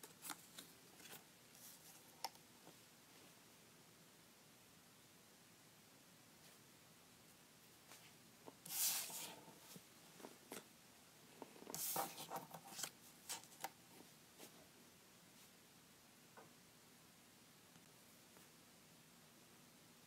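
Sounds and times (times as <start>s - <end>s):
paper rustling: 8.7s - 10.7s, 11.7s - 13.7s.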